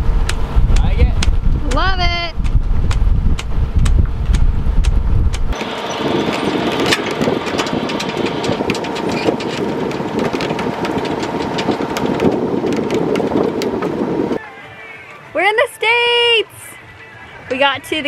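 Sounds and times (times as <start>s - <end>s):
boat engine running: 0.0s - 14.4s
wind rumbling on microphone: 0.0s - 14.4s.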